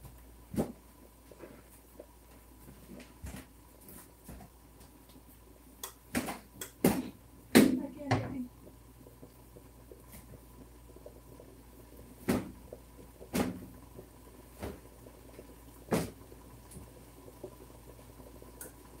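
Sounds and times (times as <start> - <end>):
faint steady hum: 0.0 - 19.0
sharp knocks in kitchen: 6.1 - 8.4.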